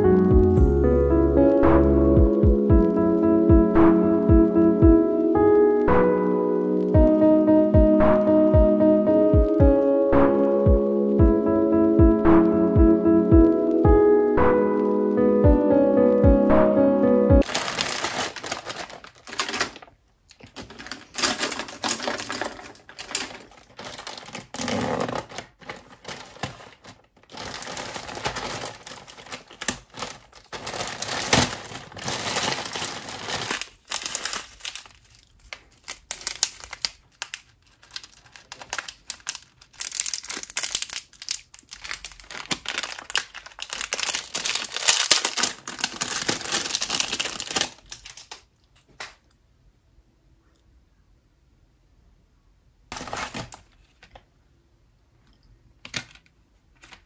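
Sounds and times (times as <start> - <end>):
plastic packaging crinkling: 17.4 - 48.7, 52.9 - 54.2.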